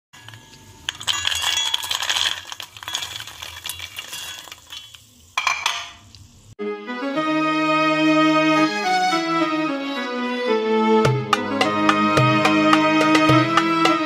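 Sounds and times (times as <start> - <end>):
spoon clinking in metal bowl: 0.2 - 6.0.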